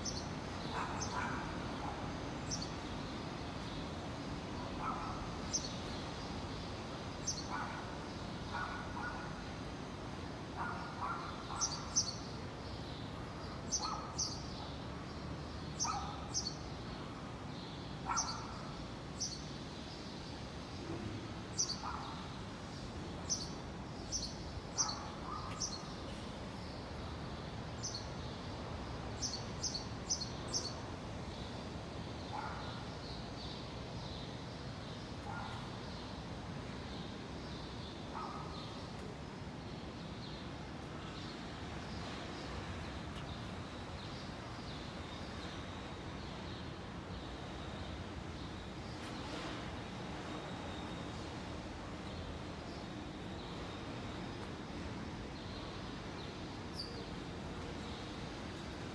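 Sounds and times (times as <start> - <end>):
steady background noise: 0.0 - 58.9.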